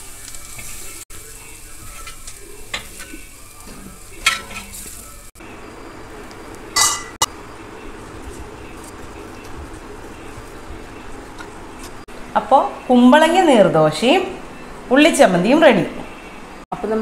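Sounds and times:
food sizzling in a pan: 0.0 - 11.2.

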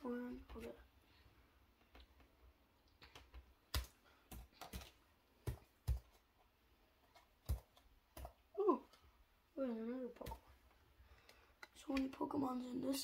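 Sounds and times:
cards clicking and tapping: 1.8 - 6.4, 7.0 - 9.0.

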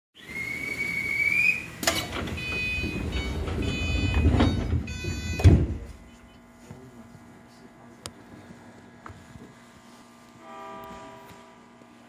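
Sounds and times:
sliding doors thumping shut: 1.8 - 6.1
door-closing chime tone: 1.9 - 6.2
electronic beeps: 2.4 - 6.4.

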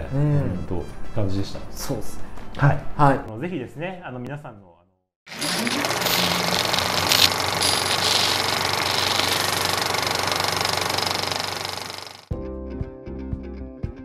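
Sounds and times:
harsh static hiss with crackles: 5.3 - 12.0.

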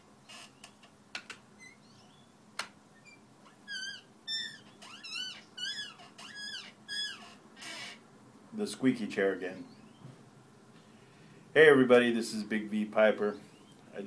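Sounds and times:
chair creaking: 0.2 - 1.8, 2.6 - 8.0
high chair squeaks: 3.0 - 8.0.

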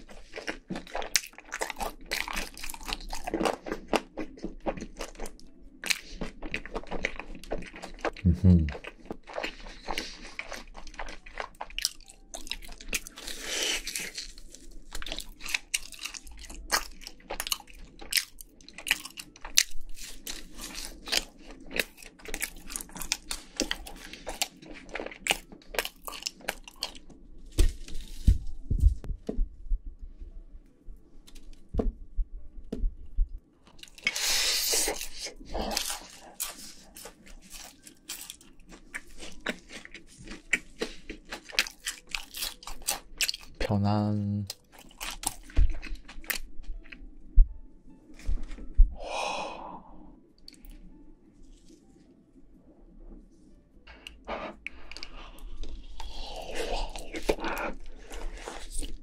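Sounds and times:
crunching of fried chicken: 0.0 - 27.1, 33.7 - 46.9.

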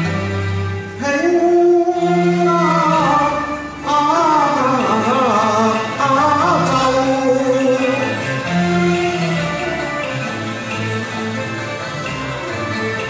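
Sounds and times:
instrumental backing track: 0.0 - 13.0
man singing into microphone: 1.0 - 8.1.

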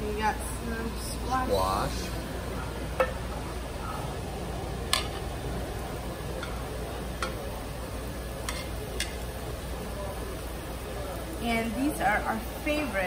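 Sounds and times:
steady background hum: 0.0 - 13.0
metal tongs clicking on grill plate: 4.9 - 5.3, 6.4 - 6.6, 7.2 - 7.4, 8.4 - 9.2.

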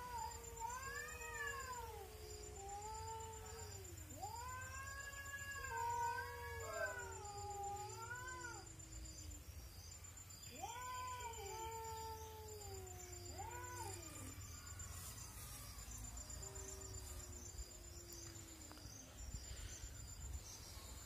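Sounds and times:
cats caterwauling: 0.0 - 9.0, 10.5 - 16.1.

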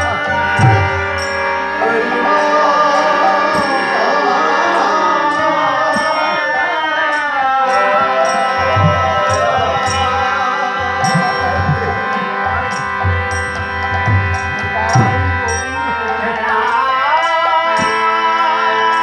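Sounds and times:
sustained instrumental chord: 0.0 - 6.6
voices chanting: 0.0 - 13.8
hand cymbals striking: 0.0 - 18.1.

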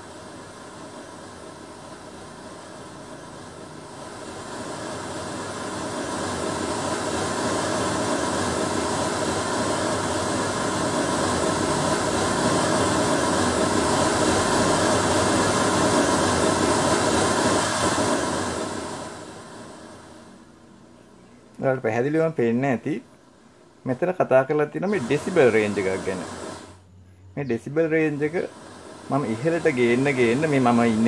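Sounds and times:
pink noise hiss: 0.0 - 31.0.

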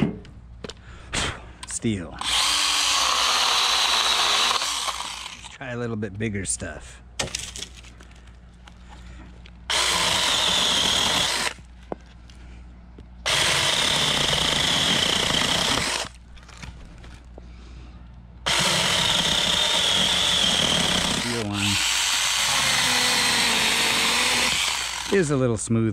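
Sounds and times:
mini chainsaw cutting branch: 2.2 - 5.5, 9.7 - 11.6, 13.3 - 16.1, 18.5 - 25.2.

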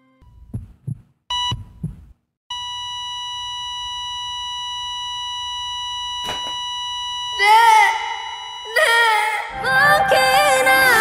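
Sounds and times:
heartbeat thumps: 0.4 - 2.2
monitor beep: 2.5 - 8.9.

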